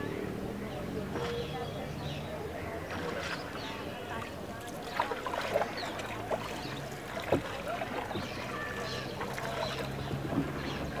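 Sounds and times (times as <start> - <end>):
water moving around boat: 0.0 - 11.0
short sharp splashes: 2.8 - 11.0.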